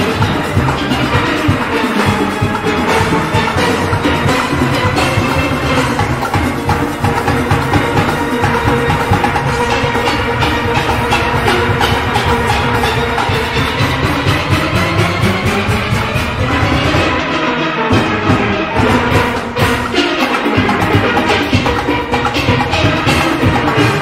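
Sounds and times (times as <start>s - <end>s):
drums and percussion beat: 0.0s - 24.0s
steelpans playing melody: 0.0s - 24.0s.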